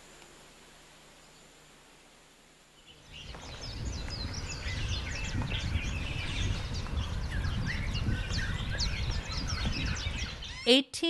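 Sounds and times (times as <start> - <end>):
small birds chirping: 2.6 - 11.0
steady low rumble: 3.0 - 10.5.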